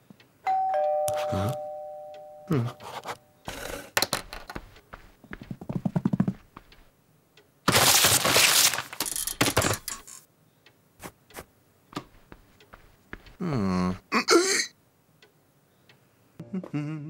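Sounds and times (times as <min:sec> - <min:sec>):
small knocks and clatters: 0:04.0 - 0:06.9, 0:07.7 - 0:10.3
paper tearing: 0:07.7 - 0:09.1.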